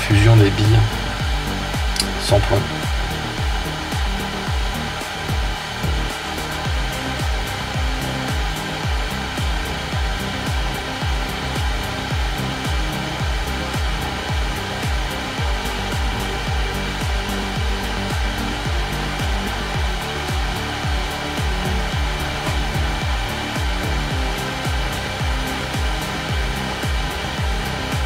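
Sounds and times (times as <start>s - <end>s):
background music with steady beat: 0.0s - 28.0s
hot-air gun blowing: 0.0s - 28.0s.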